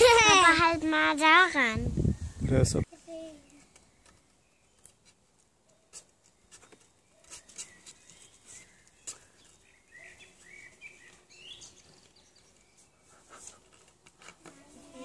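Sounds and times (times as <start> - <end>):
bird calls: 3.4 - 13.7
light clicks and rustles: 13.3 - 14.9.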